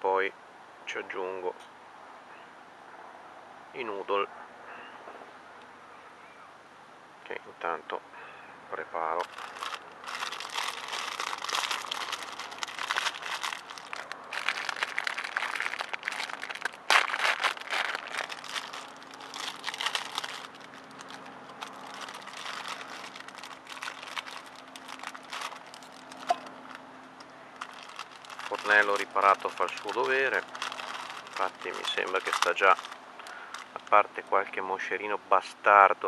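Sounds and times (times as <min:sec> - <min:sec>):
plastic packet crinkling: 0:09.2 - 0:26.8, 0:27.6 - 0:33.9.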